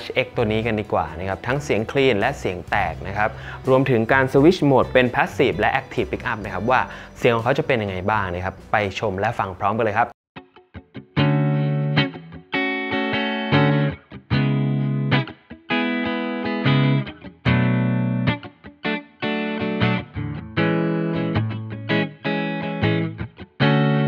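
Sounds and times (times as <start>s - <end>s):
electric guitar chords strummed: 10.4s - 24.0s.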